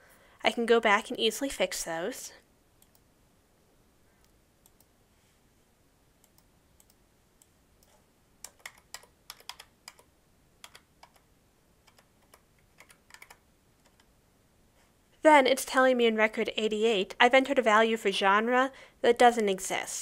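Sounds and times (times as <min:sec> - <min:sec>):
faint keyboard typing: 0:02.8 - 0:03.1, 0:04.2 - 0:05.0, 0:06.2 - 0:14.2.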